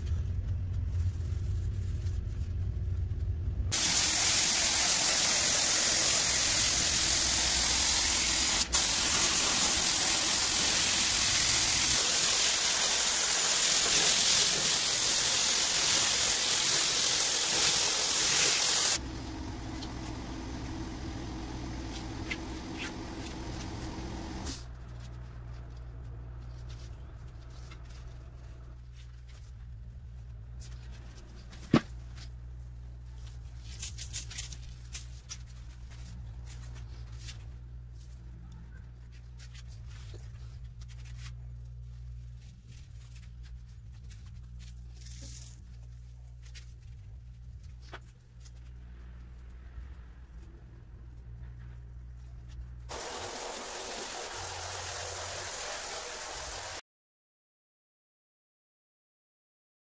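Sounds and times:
low steady hum: 0.0 - 11.6, 19.0 - 54.7
spray gun hissing: 3.7 - 19.0, 52.9 - 56.8.

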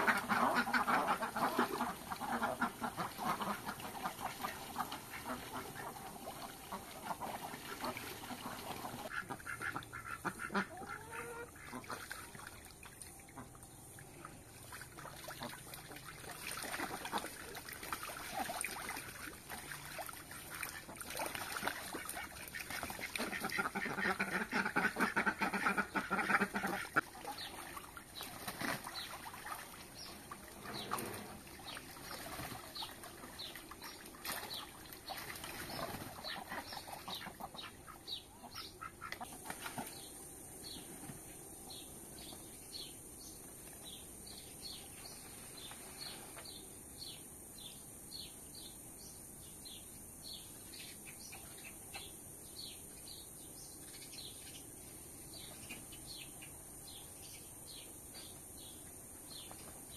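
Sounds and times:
ducks quacking: 0.0 - 12.5, 15.0 - 27.8, 34.3 - 39.9.

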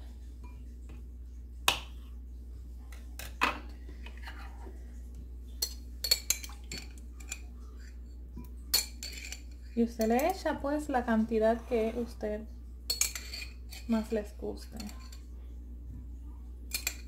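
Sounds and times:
fork clinking in glass jar: 8.7 - 10.4, 12.9 - 13.9, 14.7 - 15.2, 16.7 - 17.0.

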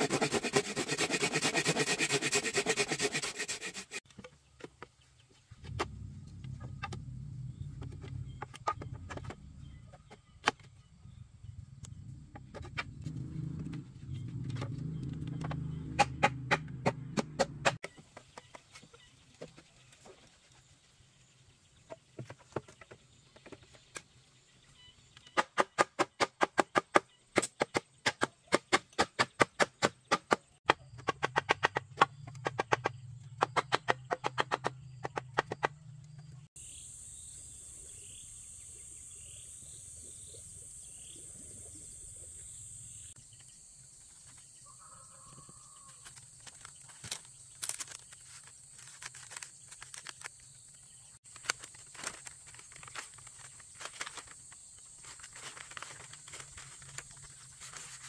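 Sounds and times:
bird chirping: 4.2 - 16.2, 17.8 - 25.8, 32.0 - 51.4
bamboo strips clicking and rustling: 45.8 - 58.0.

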